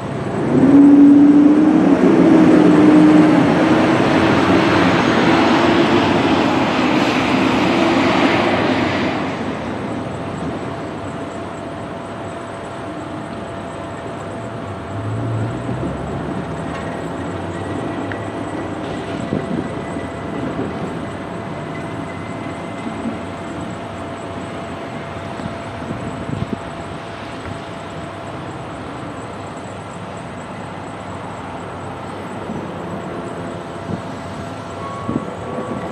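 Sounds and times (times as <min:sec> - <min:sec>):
steady background noise: 0:00.0 - 0:35.9
train passing rumble: 0:00.0 - 0:35.9.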